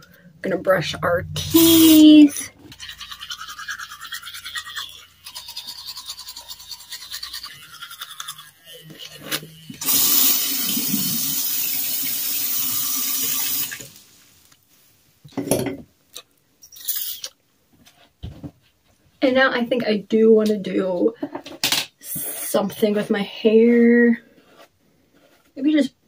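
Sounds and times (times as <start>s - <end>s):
toothbrush brushing teeth: 2.7s - 11.4s, 16.7s - 17.3s
tap running water: 9.8s - 14.0s.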